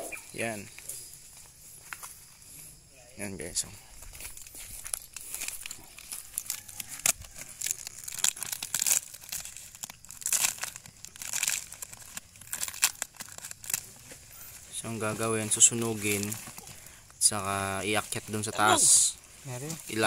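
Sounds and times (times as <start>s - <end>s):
palm leaves rustling and crackling: 0.0s - 20.0s.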